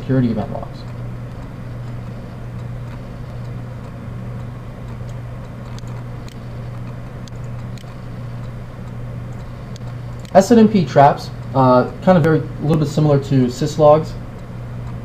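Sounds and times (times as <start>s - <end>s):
low electrical hum: 0.0s - 15.0s
computer mouse clicks: 0.8s - 10.4s.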